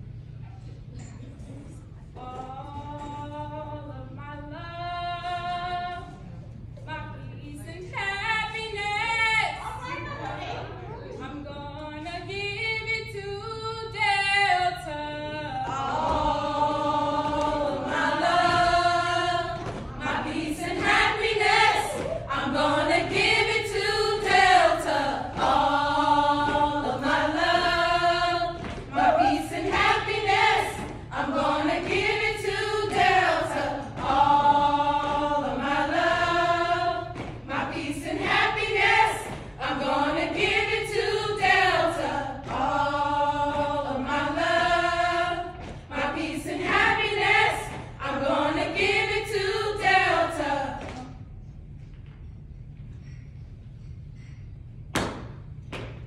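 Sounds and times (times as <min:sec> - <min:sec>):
women singing chant in unison: 0:02.2 - 0:06.3, 0:11.2 - 0:51.2.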